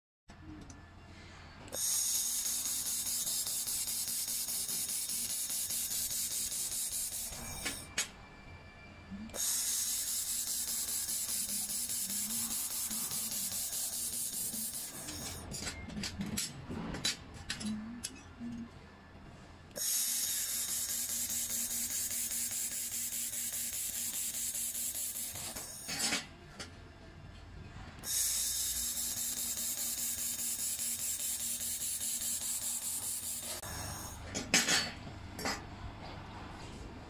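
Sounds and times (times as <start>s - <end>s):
laser welder hissing: 1.7s - 7.9s, 9.4s - 15.4s, 19.8s - 26.0s, 28.0s - 34.2s.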